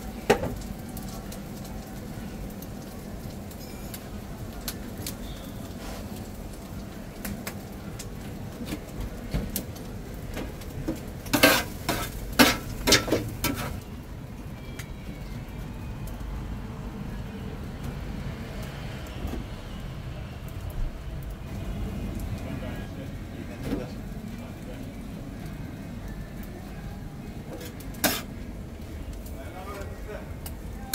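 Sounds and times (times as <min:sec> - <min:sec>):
steady low rumble: 0:20.6 - 0:24.3.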